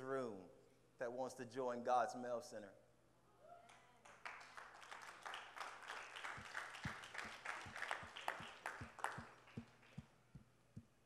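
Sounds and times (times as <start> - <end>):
crowd applauding: 4.0 - 10.2.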